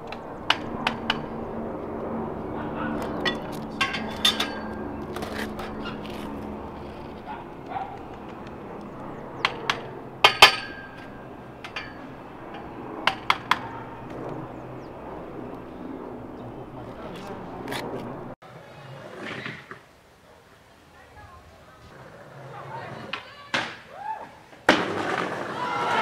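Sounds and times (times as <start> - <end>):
hammer clanking on steel pipe: 10.2 - 11.0.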